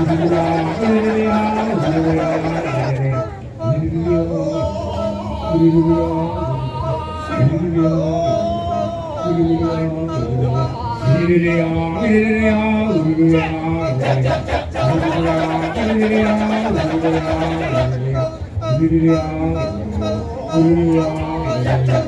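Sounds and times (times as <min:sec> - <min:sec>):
male chorus chanting: 0:00.0 - 0:22.0.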